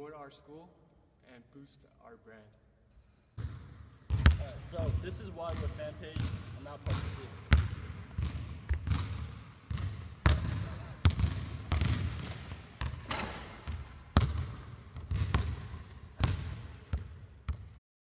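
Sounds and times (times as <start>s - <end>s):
basketball bouncing on wooden floor: 3.4s - 17.7s.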